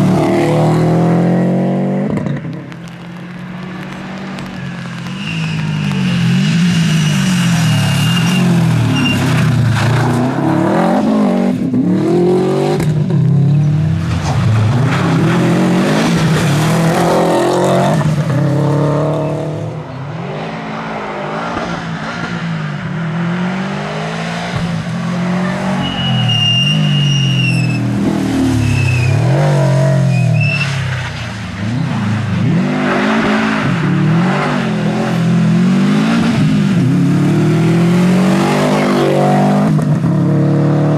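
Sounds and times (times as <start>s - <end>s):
rally car engine revving: 0.0s - 40.9s
high-pitched squeals: 4.4s - 10.0s, 25.3s - 31.2s.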